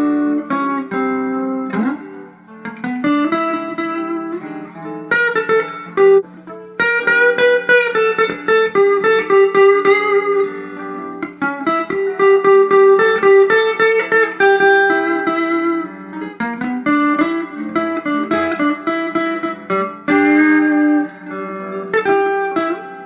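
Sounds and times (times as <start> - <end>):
electric guitar lead notes: 0.0 - 23.0.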